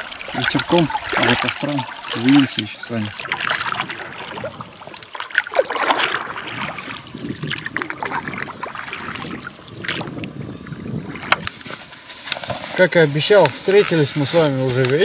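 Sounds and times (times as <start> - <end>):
small splashes: 0.0 - 11.6
river water lapping and trickling: 0.0 - 15.0.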